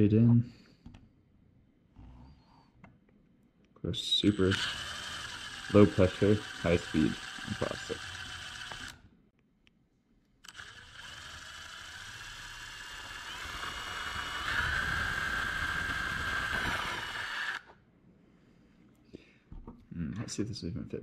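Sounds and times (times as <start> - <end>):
cordless drill boring plastic: 4.0 - 9.0, 10.4 - 17.8.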